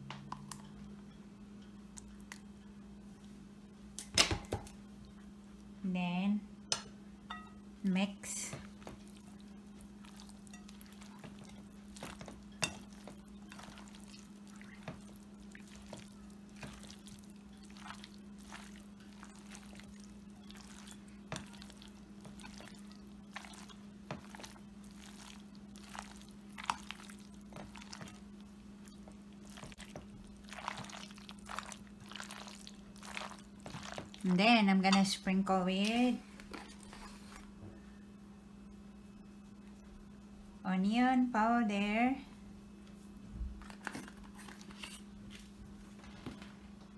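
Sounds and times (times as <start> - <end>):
steady low hum: 0.0 - 46.9
wet squishing: 8.7 - 34.4.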